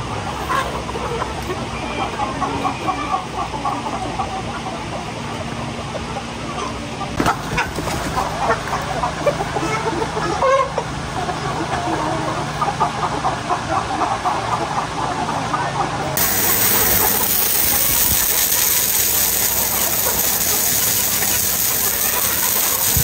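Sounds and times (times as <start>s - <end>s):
chickens clucking: 0.0s - 23.0s
loud steady hiss: 16.2s - 23.0s.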